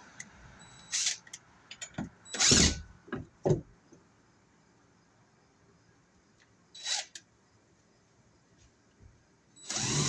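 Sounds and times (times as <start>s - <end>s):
knocks on wooden siding: 2.0s - 3.8s.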